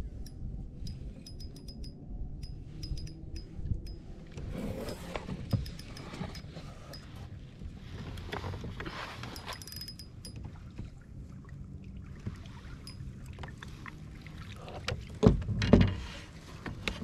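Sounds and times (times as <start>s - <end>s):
low wind rumble: 0.0s - 17.0s
rustling and clinking fishing gear: 0.1s - 10.9s, 12.7s - 13.6s.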